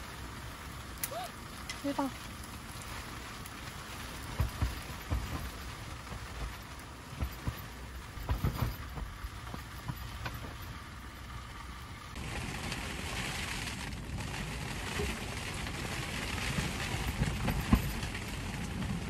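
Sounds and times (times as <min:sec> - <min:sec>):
rain pattering on tent fabric: 0:00.0 - 0:19.0
soft thuds of heavy drops: 0:04.3 - 0:10.8.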